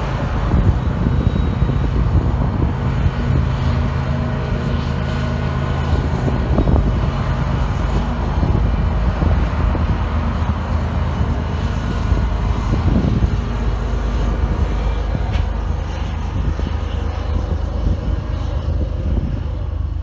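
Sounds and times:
diesel locomotive engine droning: 0.0 - 20.0.

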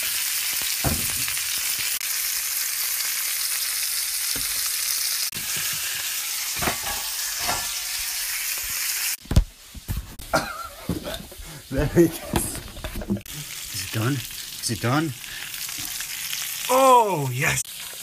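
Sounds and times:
food sizzling in a pot: 0.0 - 18.0
metal pot lid clanking: 6.6 - 7.7.

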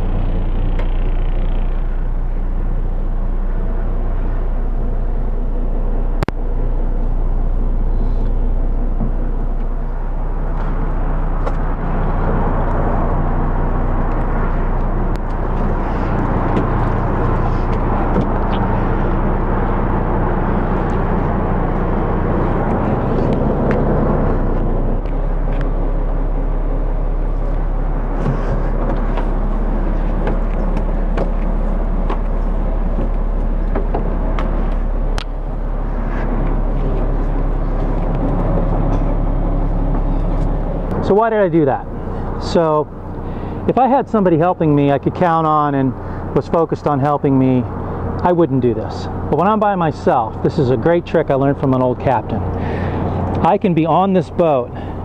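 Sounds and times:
diesel engine idling: 0.0 - 55.0
rushing noise: 9.2 - 43.6.

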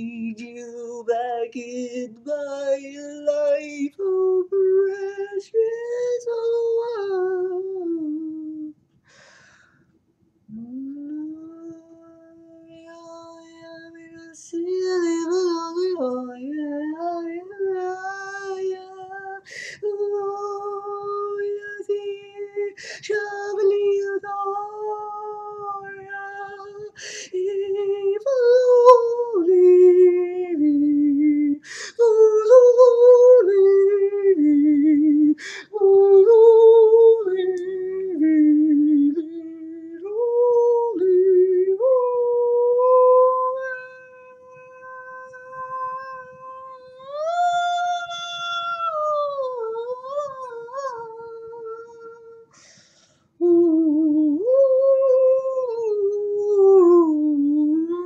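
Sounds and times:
man singing high wordless notes: 0.0 - 8.7, 10.5 - 52.6
sharp breaths: 52.5 - 53.4.

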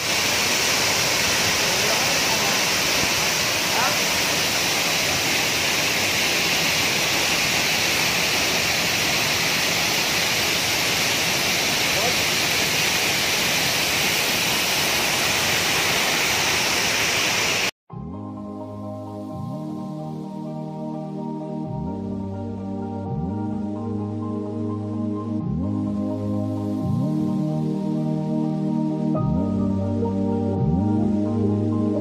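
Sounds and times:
waterfall rushing: 0.0 - 17.7
soft background music: 17.9 - 32.0.

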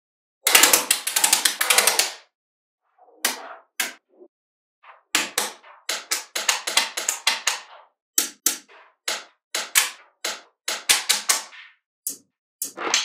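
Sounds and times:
magnetic balls clicking together: 5.2 - 13.0.

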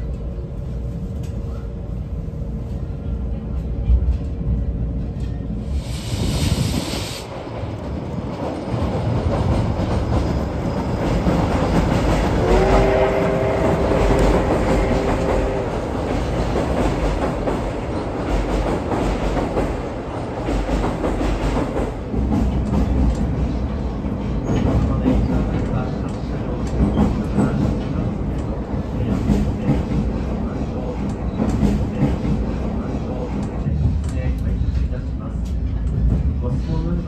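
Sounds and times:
steam train wheel clatter: 5.2 - 36.9
train whistle blast: 12.4 - 15.9.

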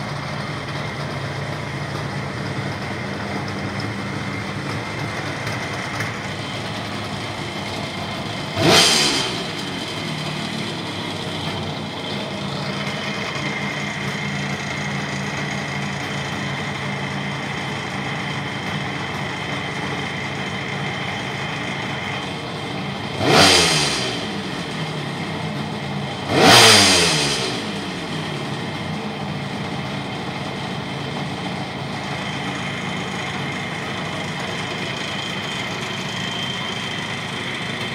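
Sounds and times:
motorcycle engine idling: 0.0 - 37.9
engine revving: 5.4 - 17.2, 19.6 - 30.0.

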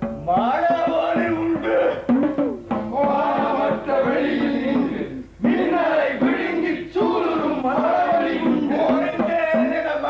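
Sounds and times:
drum beat: 0.0 - 10.0
voices chanting a sliding melody: 2.8 - 10.0.

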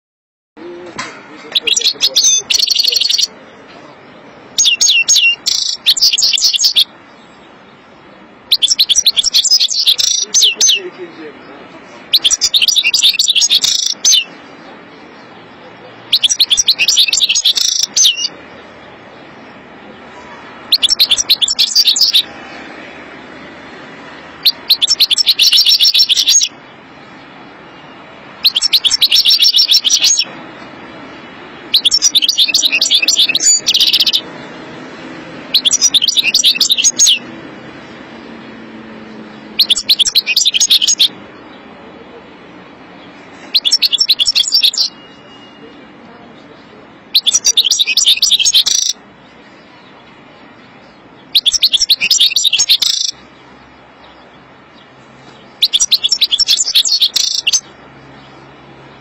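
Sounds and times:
goldfinch twittering song: 1.5 - 3.3, 4.5 - 7.0, 8.5 - 10.9, 12.0 - 14.5, 16.0 - 18.4, 20.6 - 22.3, 24.3 - 26.7, 27.7 - 30.4, 31.7 - 34.6, 35.4 - 38.3, 39.4 - 41.6, 43.0 - 45.6, 47.1 - 59.0.

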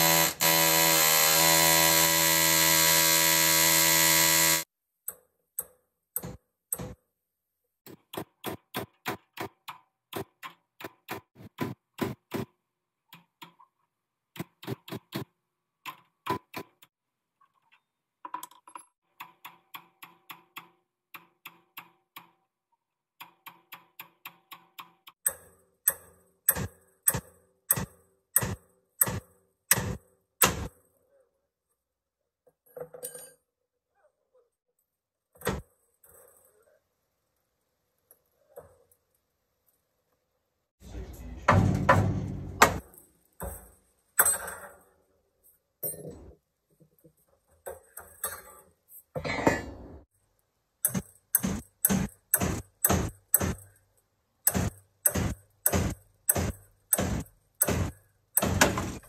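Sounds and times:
pneumatic air hammer buzzing: 0.0 - 4.7
hand hammer striking metal: 54.5 - 59.0.

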